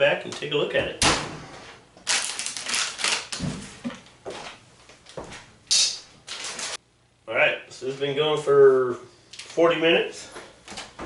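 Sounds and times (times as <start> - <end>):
plastic packaging crinkling: 2.0 - 3.4, 6.3 - 6.8.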